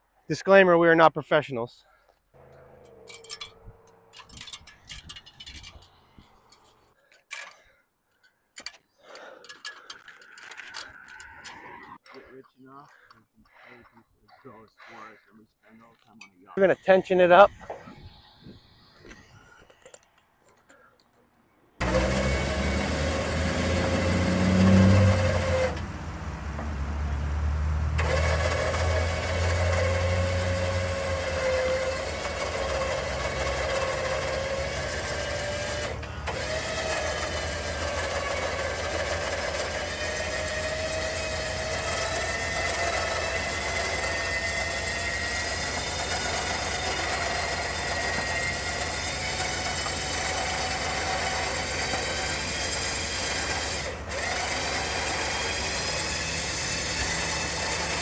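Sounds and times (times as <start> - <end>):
electric winch motor whining: 2.4 - 6.2, 21.8 - 58.0.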